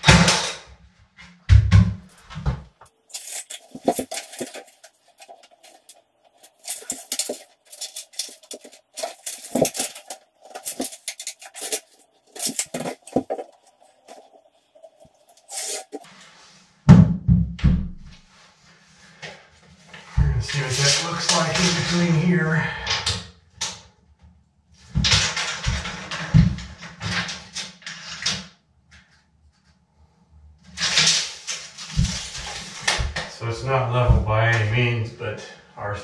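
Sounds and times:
hand tools clicking and knocking: 3.1 - 16.0.

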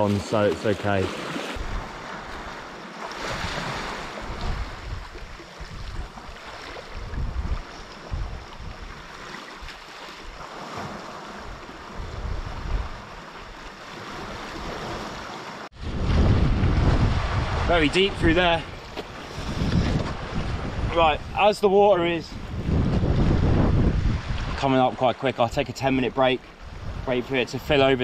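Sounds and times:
small waves lapping on rocks: 0.0 - 12.0
wind buffeting microphone: 1.6 - 2.6, 3.2 - 15.1, 15.8 - 24.6, 26.5 - 28.0.

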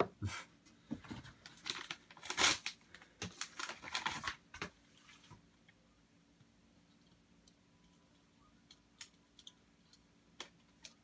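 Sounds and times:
plastic packaging crinkling: 1.4 - 4.7.

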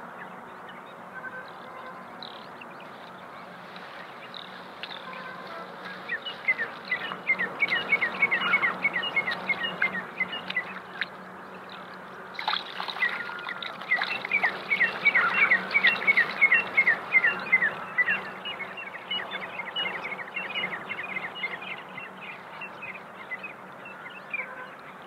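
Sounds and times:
bird chirping: 0.0 - 25.0
water splashing and dripping: 9.2 - 16.5.

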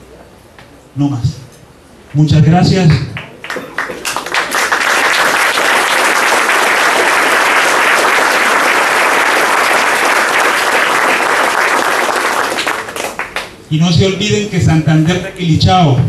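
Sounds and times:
audience applauding: 3.2 - 13.6.

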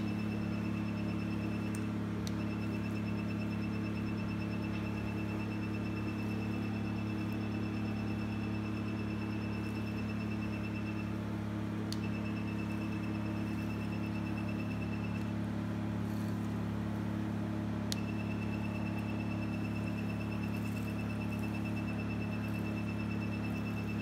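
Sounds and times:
rapid high beeps: 0.0 - 11.2, 12.0 - 15.3, 18.0 - 24.0
machine humming: 0.0 - 24.0.

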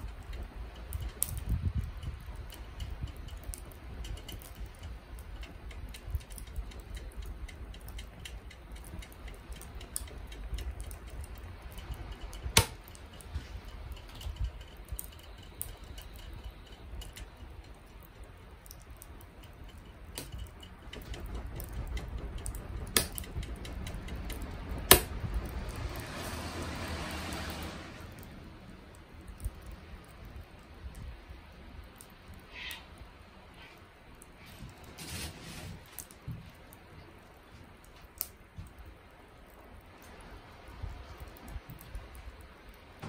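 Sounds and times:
charcoal popping and ticking: 0.0 - 43.0
low rumble: 9.9 - 31.8.

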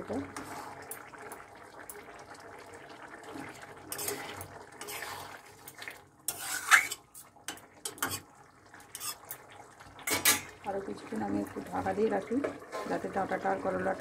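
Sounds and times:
metal spatula scraping pan: 3.9 - 5.4, 6.3 - 7.2, 7.8 - 8.3, 8.9 - 9.4, 12.5 - 13.1.

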